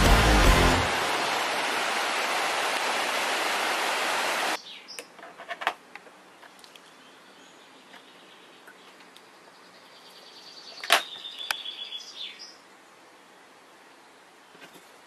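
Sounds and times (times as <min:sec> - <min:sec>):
river water running over rocks: 0:00.0 - 0:04.6.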